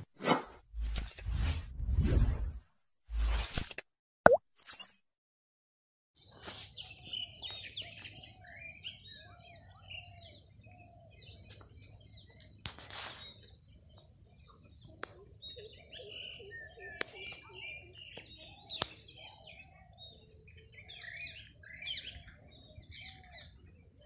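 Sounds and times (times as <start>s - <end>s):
swooshing sound effect: 0.2s - 3.6s
birds chirping: 6.2s - 24.0s.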